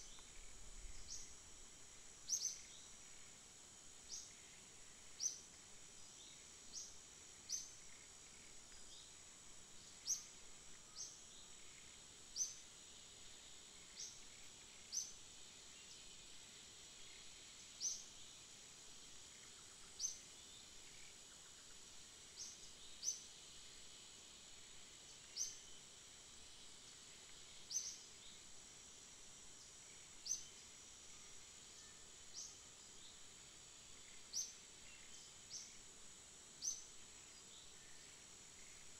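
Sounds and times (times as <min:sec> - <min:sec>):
high-pitched insect drone: 0:00.0 - 0:18.4.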